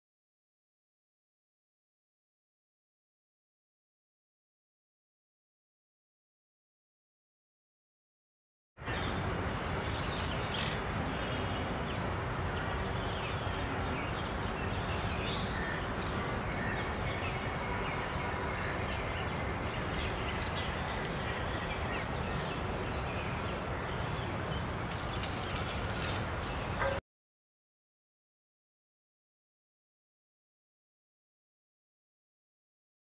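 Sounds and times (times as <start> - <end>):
outdoor ambient hiss: 8.8 - 27.0.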